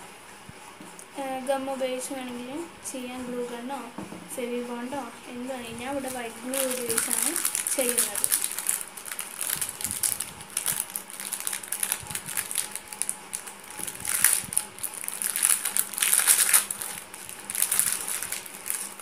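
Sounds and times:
crinkling and rustling: 0:05.6 - 0:19.0.

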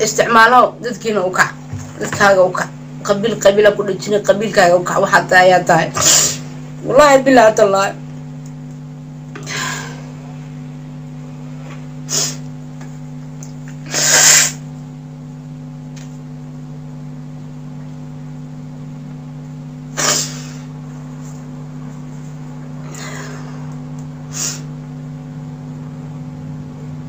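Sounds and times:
steady low hum: 0:00.0 - 0:27.0
woman sniffling: 0:06.0 - 0:06.5, 0:09.4 - 0:10.2, 0:12.0 - 0:12.5, 0:13.8 - 0:14.6, 0:19.9 - 0:20.8, 0:22.8 - 0:23.6, 0:24.3 - 0:24.7.

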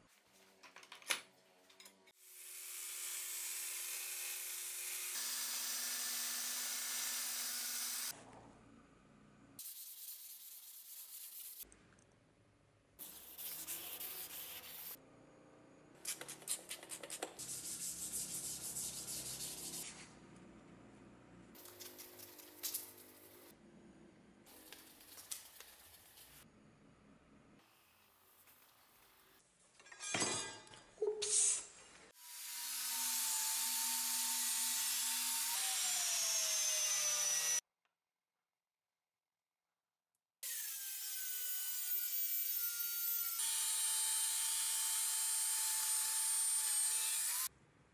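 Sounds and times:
sandpaper scratching on metal blade: 0:09.6 - 0:11.6, 0:13.0 - 0:15.0, 0:16.1 - 0:20.0.

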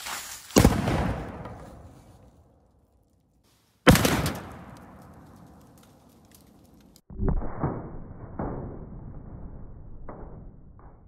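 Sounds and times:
cannon firing: 0:00.6 - 0:01.8, 0:03.9 - 0:05.6.

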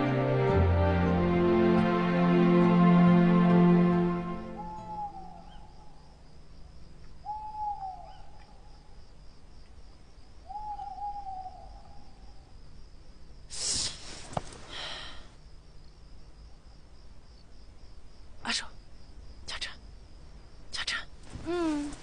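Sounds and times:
faint insect trill: 0:04.4 - 0:22.0
owl hooting: 0:04.6 - 0:06.0, 0:07.2 - 0:08.6, 0:10.4 - 0:12.2.

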